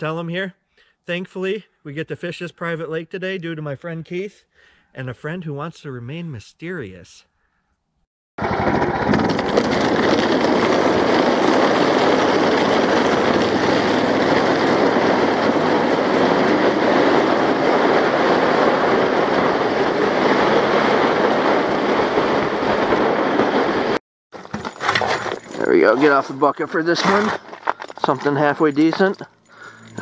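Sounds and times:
plastic sled rumbling over ice: 0:08.4 - 0:29.1.

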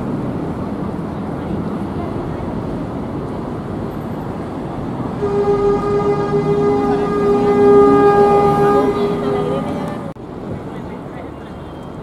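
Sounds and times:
train rumbling: 0:00.0 - 0:10.9
train warning signal: 0:05.2 - 0:10.1.

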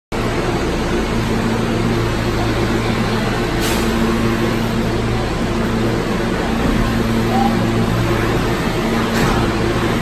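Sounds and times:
train equipment humming: 0:00.1 - 0:10.0.

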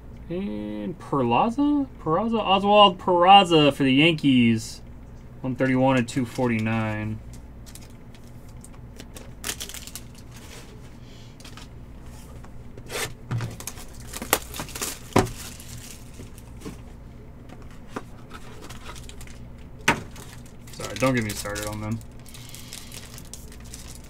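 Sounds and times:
low steady hum: 0:00.0 - 0:24.0.

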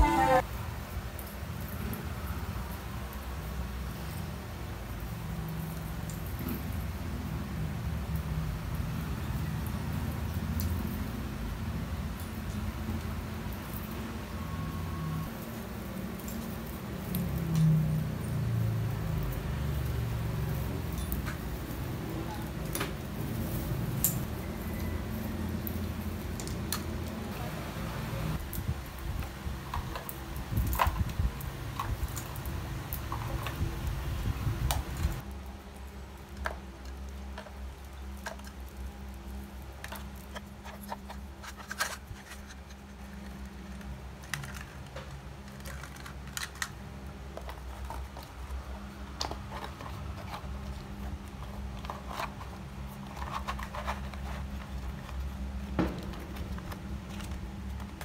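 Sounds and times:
decorations rustling: 0:00.0 - 0:00.4, 0:20.4 - 0:58.0.

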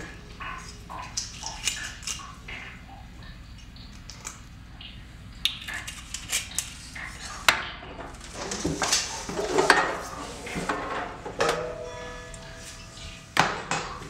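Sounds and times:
knocks and clinks: 0:11.3 - 0:14.0.

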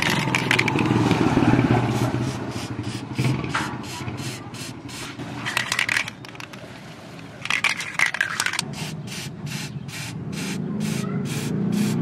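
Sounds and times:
aerosol spray hissing bursts: 0:01.9 - 0:05.2, 0:08.7 - 0:12.0.

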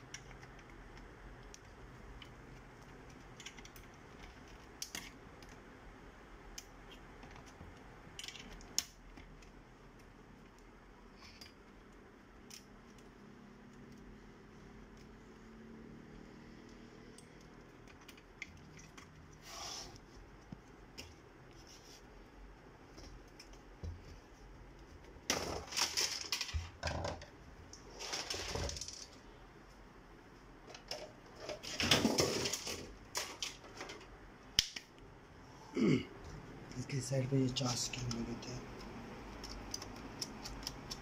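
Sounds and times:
metal parts clicking and rattling: 0:00.0 - 0:05.6, 0:06.6 - 0:13.1, 0:25.2 - 0:27.3, 0:30.7 - 0:34.1.

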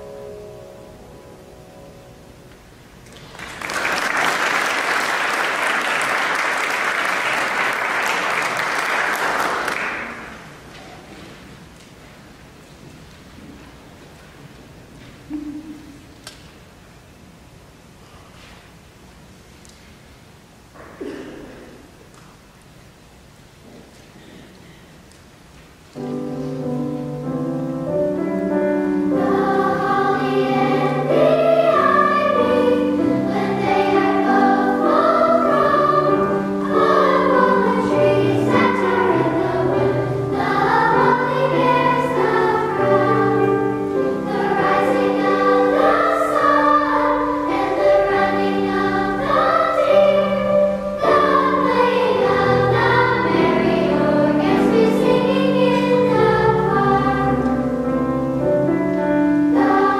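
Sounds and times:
piano accompaniment: 0:00.0 - 0:03.0, 0:25.9 - 0:59.9
girls' choir singing: 0:26.0 - 0:59.9.

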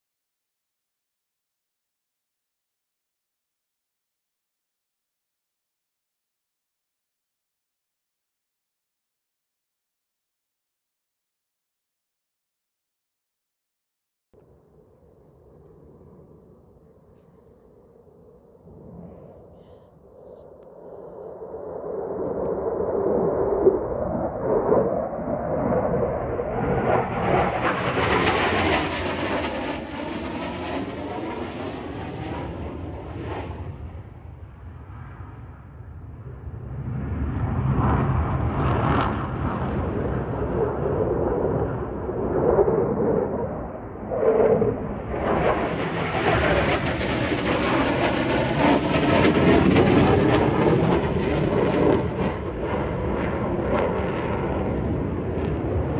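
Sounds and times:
jet flying low past: 0:14.4 - 0:55.9.

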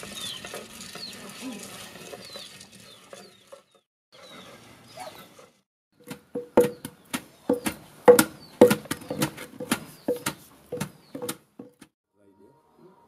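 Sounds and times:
pestle pounding in wooden mortar: 0:06.0 - 0:11.9.

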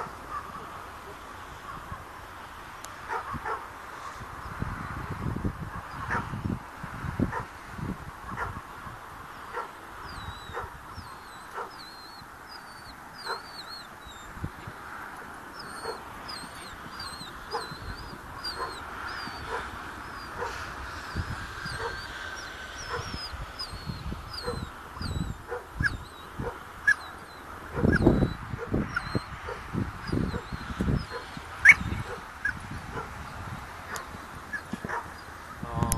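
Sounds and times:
dog barking: 0:03.1 - 0:03.7, 0:05.9 - 0:06.3, 0:07.3 - 0:07.5, 0:08.3 - 0:08.7, 0:09.5 - 0:09.8, 0:10.5 - 0:10.8, 0:11.5 - 0:11.8, 0:13.2 - 0:13.6, 0:15.2 - 0:20.6, 0:21.6 - 0:22.1, 0:22.8 - 0:23.2, 0:24.3 - 0:24.7, 0:25.5 - 0:33.2, 0:33.9 - 0:35.2
dog yelping: 0:05.9 - 0:06.3, 0:09.5 - 0:14.3, 0:15.2 - 0:33.2, 0:33.9 - 0:35.3.

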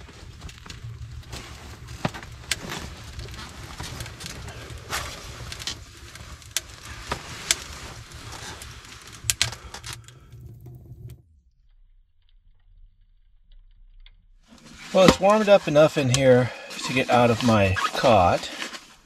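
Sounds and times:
nylon sleeping bag rustling: 0:00.0 - 0:09.7, 0:14.5 - 0:19.0.

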